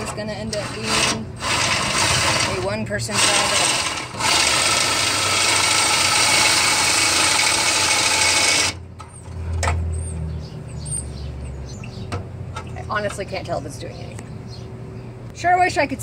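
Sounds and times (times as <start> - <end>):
metal-on-metal rasp: 0.0 - 9.2.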